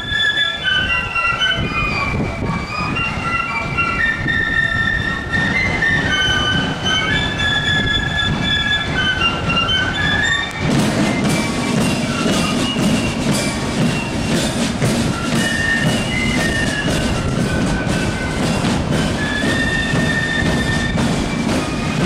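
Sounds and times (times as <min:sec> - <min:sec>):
flutes playing melody: 0:00.0 - 0:22.0
side drums: 0:10.6 - 0:22.0.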